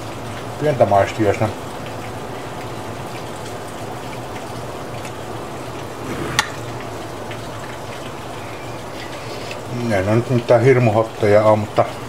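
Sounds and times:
watery hiss: 5.9 - 6.8, 8.4 - 9.9.

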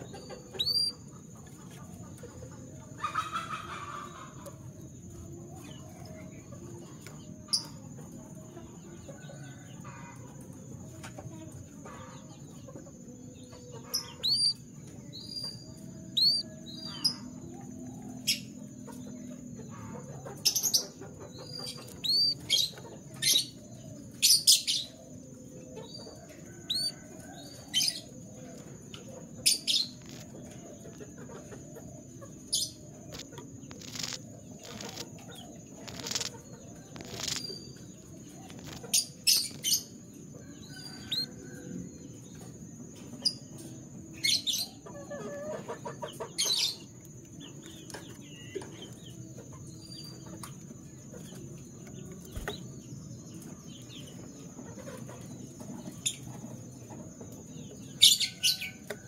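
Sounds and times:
canary chirps: 0.0 - 4.5, 11.9 - 17.4, 18.2 - 25.0, 25.8 - 28.1, 29.2 - 31.4, 32.3 - 41.4, 44.2 - 56.6.

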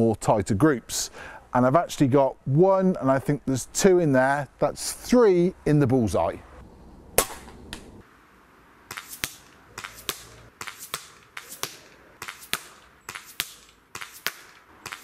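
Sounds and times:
air pistol shots: 7.2 - 7.9, 8.9 - 15.0
pellets hitting cardboard: 8.9 - 15.0.

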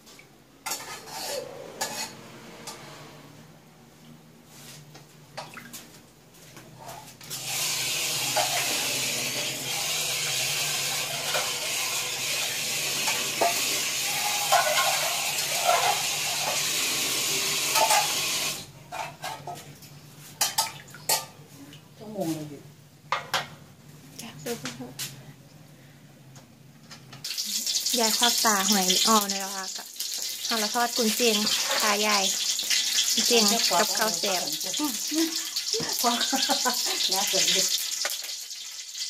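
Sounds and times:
water running: 7.4 - 18.7, 27.3 - 39.0.

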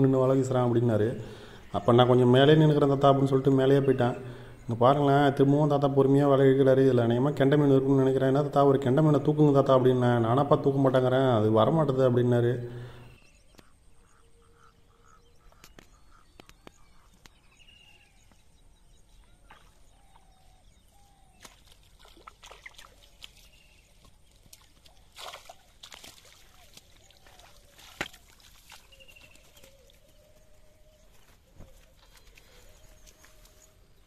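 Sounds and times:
birds calling: 0.0 - 34.0
net splashing in water: 21.4 - 23.5, 24.6 - 28.9.

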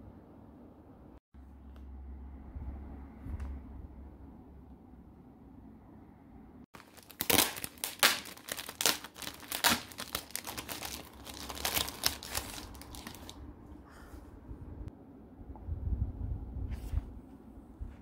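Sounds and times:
plastic bag crinkling: 6.8 - 13.4.

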